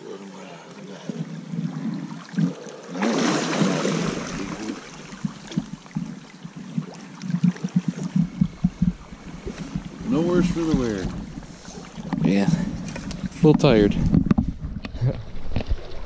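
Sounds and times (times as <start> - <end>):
fish splashing in water: 1.1 - 12.2
low knocks: 4.0 - 14.8.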